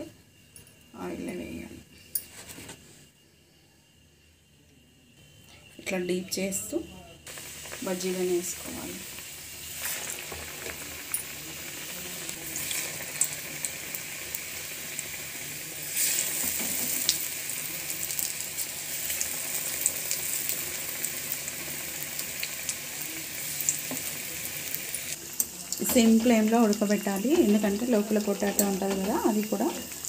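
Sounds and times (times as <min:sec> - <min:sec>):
food deep-frying in oil: 0:06.4 - 0:30.0.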